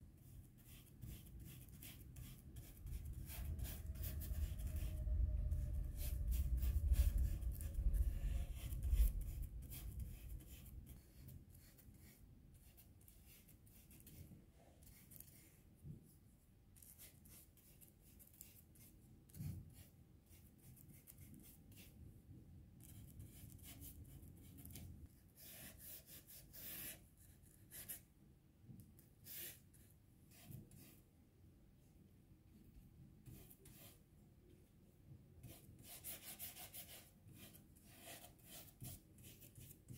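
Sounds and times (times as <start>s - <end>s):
brush strokes on paper: 0.0s - 16.2s, 32.5s - 34.1s
low rumble of handling: 2.6s - 10.2s.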